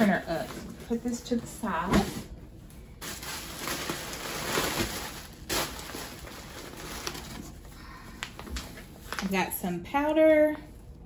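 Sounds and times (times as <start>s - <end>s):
bubble wrap crinkling: 1.9s - 9.5s.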